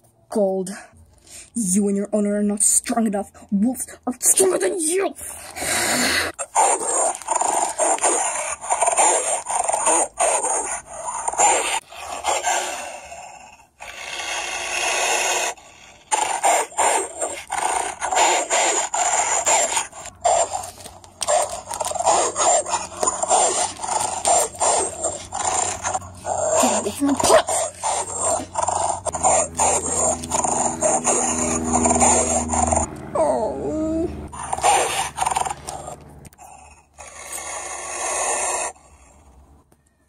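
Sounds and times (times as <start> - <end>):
dogs snarling in a fight: 5.4 - 32.9, 34.2 - 39.0
low steady dog growl: 5.4 - 39.2.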